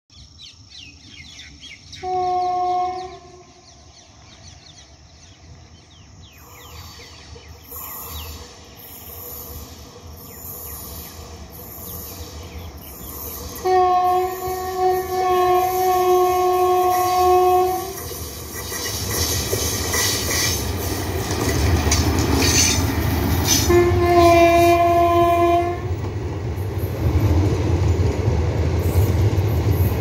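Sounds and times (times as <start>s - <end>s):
birds chirping: 0.1s - 13.6s
train rumbling: 0.8s - 30.0s
locomotive horn: 2.0s - 3.6s, 13.6s - 18.0s, 23.5s - 26.0s.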